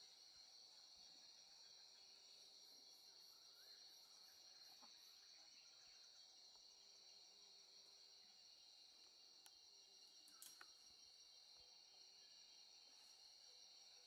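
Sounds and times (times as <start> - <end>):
high insect chirps: 0.0 - 14.0
insect drone: 0.0 - 14.0.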